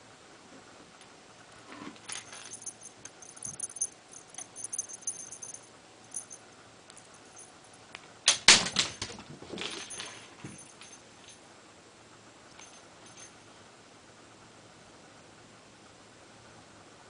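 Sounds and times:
cat toy jingling: 0:02.1 - 0:06.4.

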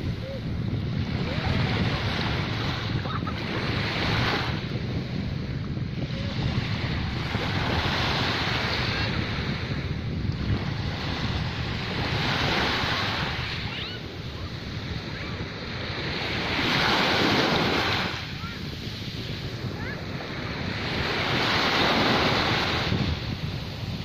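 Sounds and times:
waves breaking on beach: 0:00.0 - 0:24.0
wind rumble on microphone: 0:00.0 - 0:24.0.

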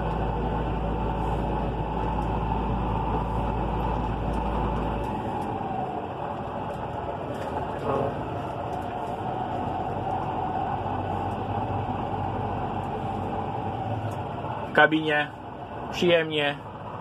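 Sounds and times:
tractor diesel engine rumbling: 0:00.0 - 0:17.0.

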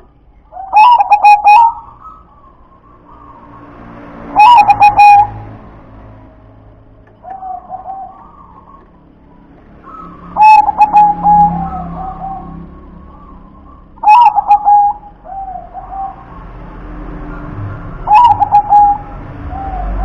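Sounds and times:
dove cooing: 0:00.5 - 0:03.5, 0:04.3 - 0:05.4, 0:07.2 - 0:09.1, 0:09.8 - 0:16.5, 0:17.7 - 0:20.0.

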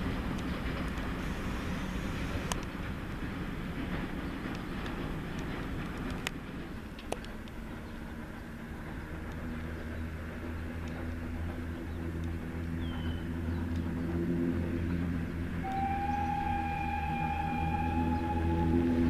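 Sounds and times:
steam locomotive rumbling: 0:00.0 - 0:19.0
bird chirp: 0:12.8 - 0:14.1.

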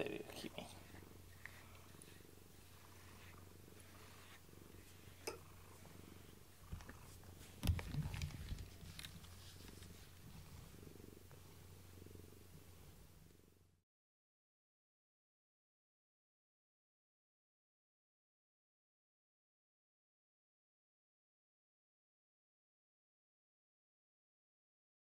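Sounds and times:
cat purring: 0:00.0 - 0:13.7.

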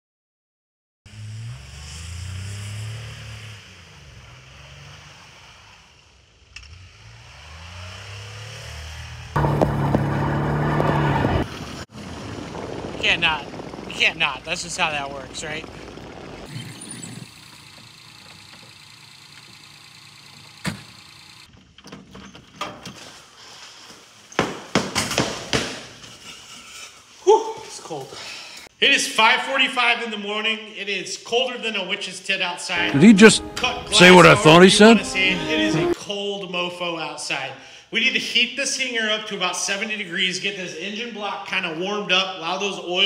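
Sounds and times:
engine revving: 0:01.1 - 0:11.6.

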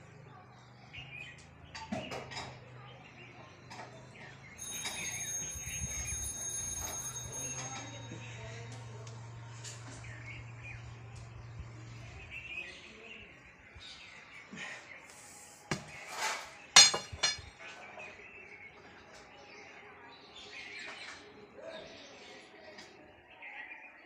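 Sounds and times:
birds chirping: 0:16.7 - 0:17.5
sharp knocks and clatters: 0:16.8 - 0:17.5.

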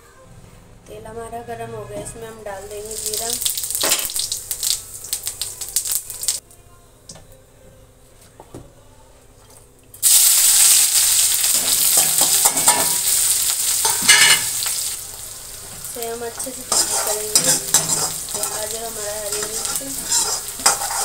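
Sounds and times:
seeds crackling in hot oil: 0:02.7 - 0:06.4, 0:10.0 - 0:21.0
loud sizzle of vegetables in oil: 0:02.8 - 0:06.4, 0:10.0 - 0:21.0.

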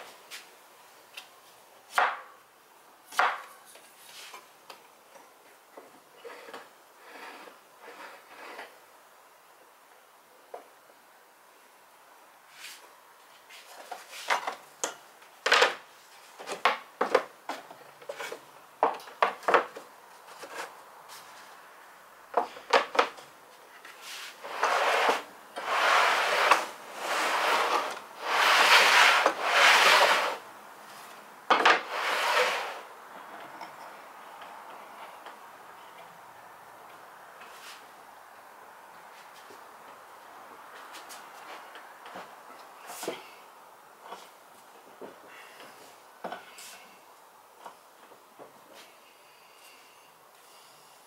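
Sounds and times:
metal plate scraping over wood: 0:06.2 - 0:08.7, 0:24.0 - 0:30.4, 0:31.6 - 0:32.9.

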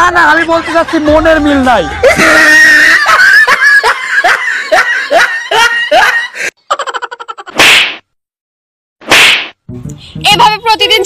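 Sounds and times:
person laughing: 0:02.0 - 0:07.6.

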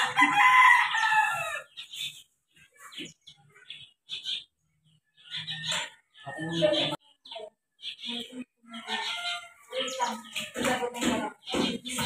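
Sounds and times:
rooster crowing: 0:00.0 - 0:01.7, 0:08.8 - 0:10.2.

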